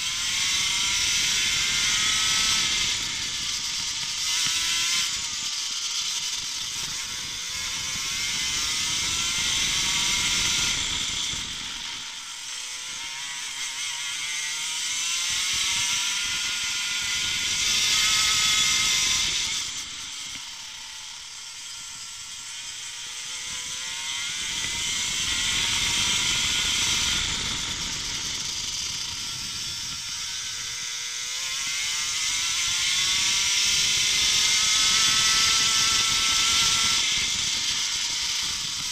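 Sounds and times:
kart engine revving: 0:23.2 - 0:38.9.

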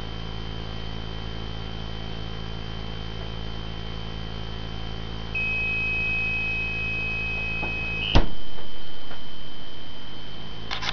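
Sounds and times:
high-pitched alarm tone: 0:05.3 - 0:10.2
refrigerator door shutting: 0:08.1 - 0:08.7.

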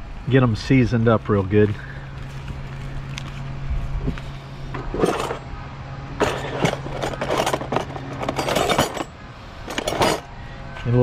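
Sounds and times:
construction machinery hum: 0:00.0 - 0:11.0
metal utensils clattering in drawer: 0:04.9 - 0:05.5, 0:06.2 - 0:09.1, 0:09.7 - 0:10.3.

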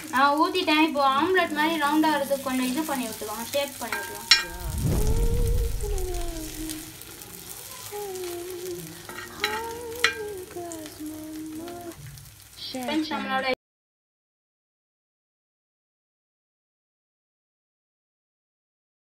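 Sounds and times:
food frying in oil: 0:00.0 - 0:13.6
metal spoon scraping on griddle: 0:09.1 - 0:10.3.

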